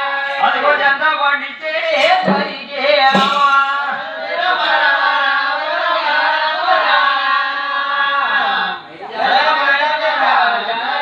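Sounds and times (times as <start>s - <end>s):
sharp percussive strikes: 1.9s - 4.8s
women singing together: 1.9s - 11.0s.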